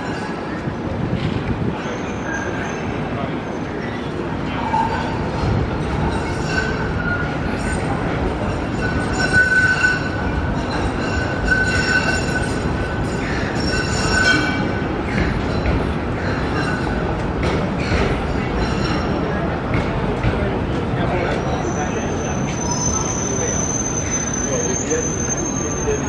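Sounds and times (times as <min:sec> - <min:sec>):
city traffic rumble: 0:00.0 - 0:26.0
thin high squeal: 0:21.6 - 0:26.0.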